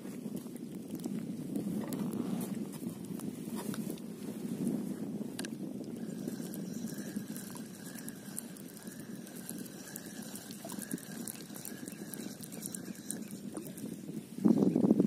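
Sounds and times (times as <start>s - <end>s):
small waves lapping: 5.4s - 14.4s.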